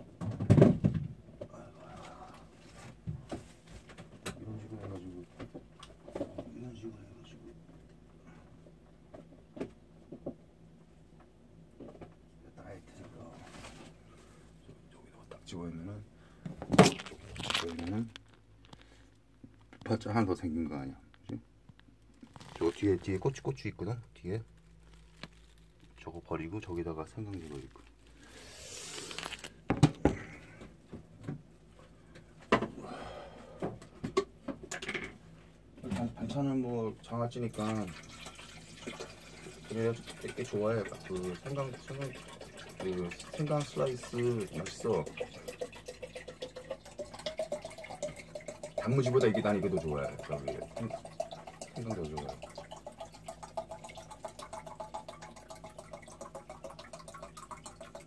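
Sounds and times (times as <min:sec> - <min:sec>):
household items knocking and clattering: 0:00.2 - 0:01.2, 0:29.7 - 0:30.3
water glugging as it is poured: 0:16.8 - 0:18.2, 0:22.2 - 0:23.4, 0:37.4 - 0:58.0.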